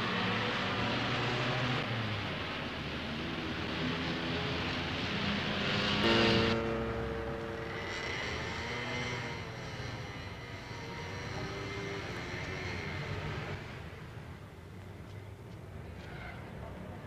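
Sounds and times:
passing traffic rumble: 0.0 - 17.0
faint high whine: 6.0 - 9.6.

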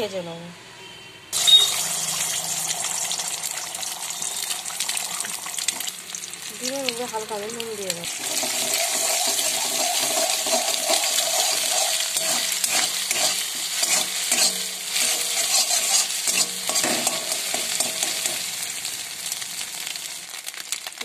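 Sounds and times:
egg sizzling in hot oil: 1.4 - 21.0
metal spatula scraping pan: 8.1 - 18.4.

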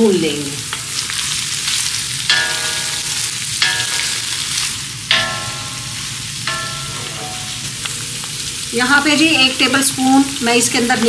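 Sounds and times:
meat and onions sizzling in oil: 0.0 - 11.0
spoon knocking ringing pan: 2.2 - 8.4.

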